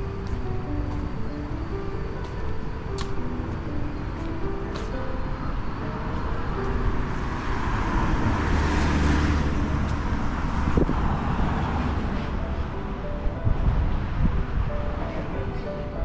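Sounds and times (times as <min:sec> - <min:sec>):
road traffic noise: 0:00.0 - 0:16.0
vehicle passing close by: 0:05.9 - 0:15.3.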